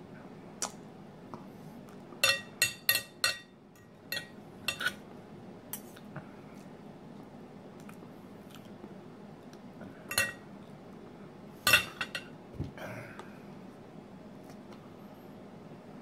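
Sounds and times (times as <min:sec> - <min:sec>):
cutlery clinking on ceramic plate: 0:02.2 - 0:05.0, 0:10.1 - 0:10.4, 0:11.7 - 0:12.3.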